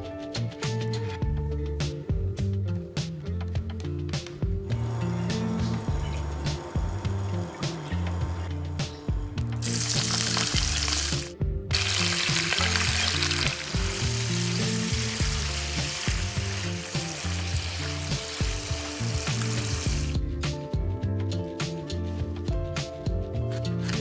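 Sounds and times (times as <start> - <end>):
food sizzling in hot oil: 9.6 - 20.2.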